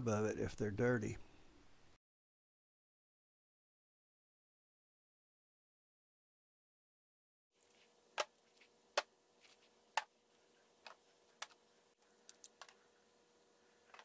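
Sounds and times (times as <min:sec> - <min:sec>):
faint steady hum: 0:07.6 - 0:14.0.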